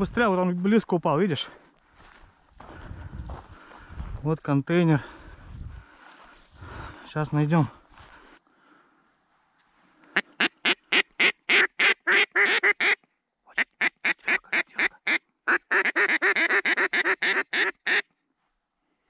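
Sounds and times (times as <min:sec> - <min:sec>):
duck call quacks: 0:10.1 - 0:18.1.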